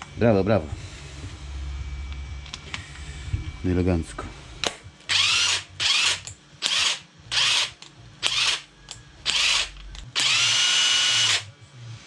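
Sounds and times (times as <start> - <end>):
impact wrench whining: 5.1 - 11.5.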